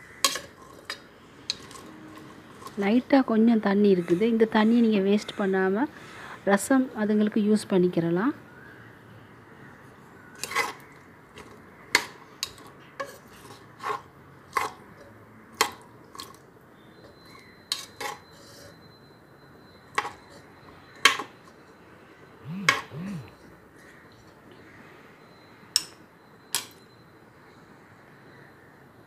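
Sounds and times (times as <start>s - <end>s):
spoon clinking in metal pot: 25.8s - 26.8s.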